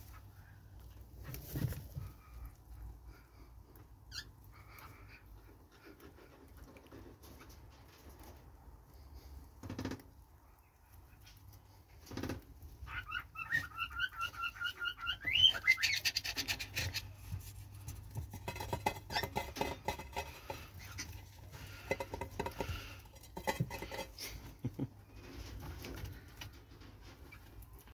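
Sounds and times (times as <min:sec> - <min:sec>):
rabbits chewing grass: 0:00.0 - 0:27.9
bird chirping: 0:12.8 - 0:16.7.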